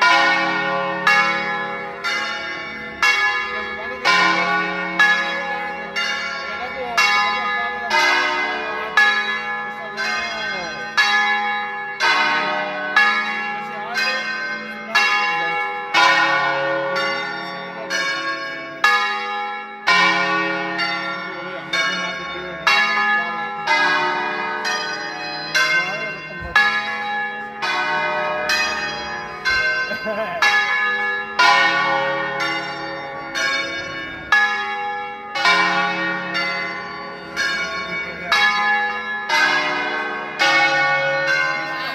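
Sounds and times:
church bells ringing: 0.0s - 41.9s.

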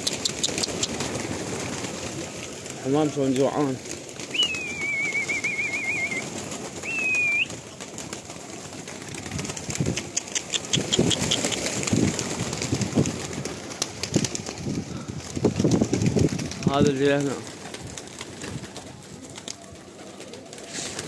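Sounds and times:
pigeons cooing: 0.0s - 2.8s, 4.2s - 7.6s, 10.0s - 11.9s
pigeons flapping wings: 0.0s - 21.0s
high warbling whistles: 4.3s - 7.6s.

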